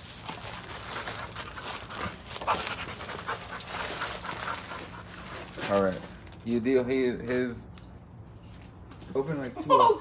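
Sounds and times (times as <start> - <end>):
dog panting: 1.1 - 5.6.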